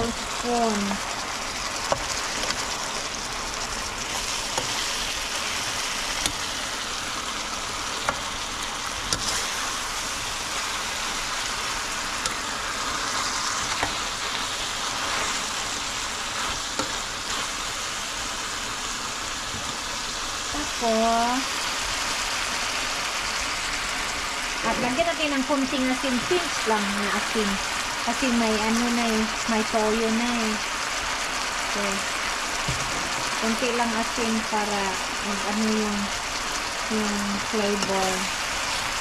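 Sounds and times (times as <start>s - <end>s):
food sizzling in a frying pan: 0.0s - 39.0s
metal spoon stirring: 9.0s - 9.6s.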